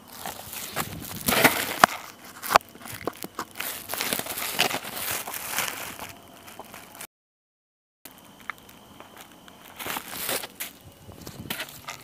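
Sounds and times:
rustling and scraping on rock: 0.0s - 7.1s, 9.7s - 12.0s.

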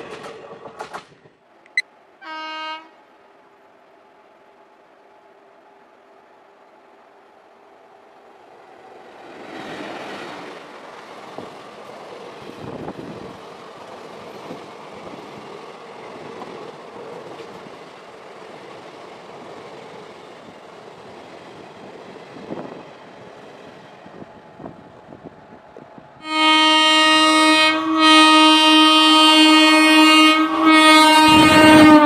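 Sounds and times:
wheels clacking over rail joints: 0.0s - 1.4s, 9.1s - 23.8s
train passing at speed: 0.0s - 32.0s.

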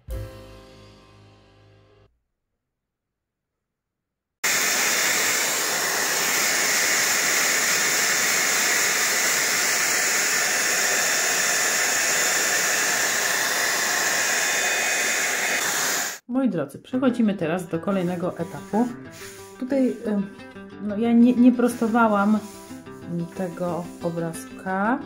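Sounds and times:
hair dryer blowing: 4.4s - 16.2s, 21.7s - 22.7s.

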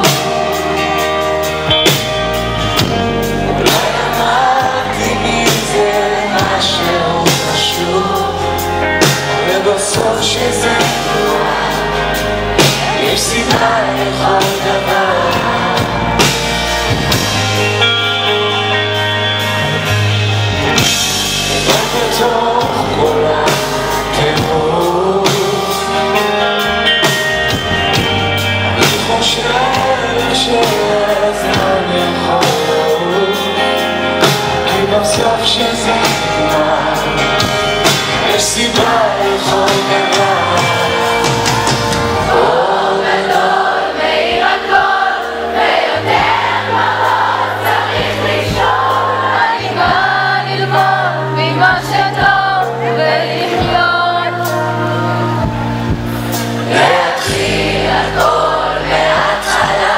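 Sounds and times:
live pop-rock band playing: 0.0s - 59.9s
man singing into microphone: 3.5s - 16.2s, 21.3s - 26.7s, 28.7s - 41.6s.

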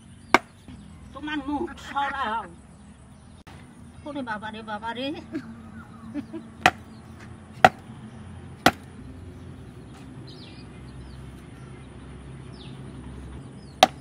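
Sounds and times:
wood striking a blade: 0.3s - 0.6s, 7.6s - 7.8s, 8.6s - 8.9s, 13.8s - 14.0s
faint bird chirps: 5.3s - 7.2s.

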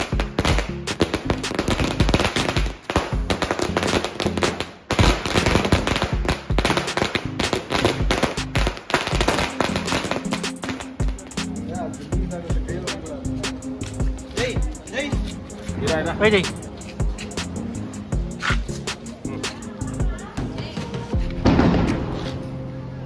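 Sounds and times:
firecrackers bursting: 0.0s - 11.6s, 21.3s - 22.5s
background music: 0.0s - 23.0s.

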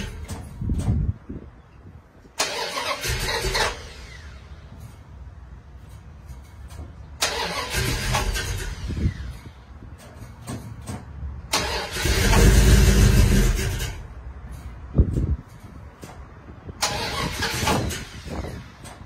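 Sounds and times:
engine rumbling and surging: 0.0s - 19.0s.

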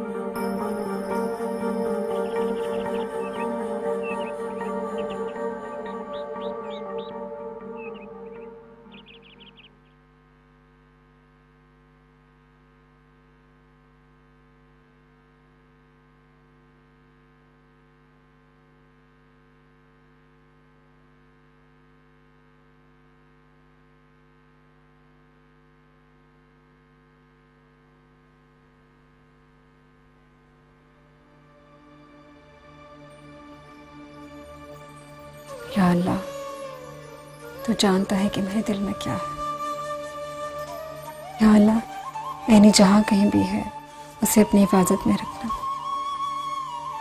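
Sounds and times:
music: 0.0s - 9.8s, 30.3s - 47.0s
electrical mains hum: 0.0s - 36.2s, 37.0s - 47.0s.

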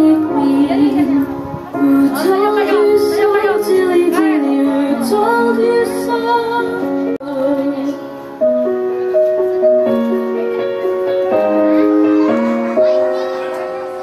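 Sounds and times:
person singing: 0.0s - 8.7s
held piano-like notes: 0.0s - 14.0s.

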